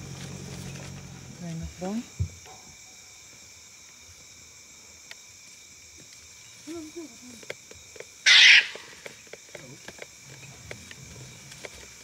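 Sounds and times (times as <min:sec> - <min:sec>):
insects chirring: 0:00.0 - 0:12.0
faint ticks: 0:05.0 - 0:05.3, 0:06.0 - 0:08.2, 0:09.0 - 0:12.0
harsh animal cry: 0:08.2 - 0:09.0
soft animal call: 0:08.3 - 0:09.0.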